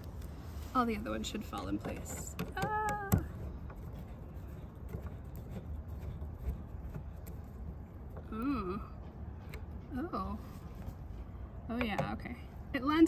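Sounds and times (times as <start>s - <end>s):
woman humming: 8.2s - 9.0s.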